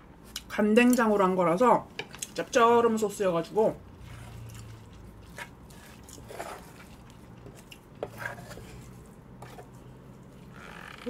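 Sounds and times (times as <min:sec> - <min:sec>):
wooden spoon scraping wooden bowl: 0:04.0 - 0:11.0.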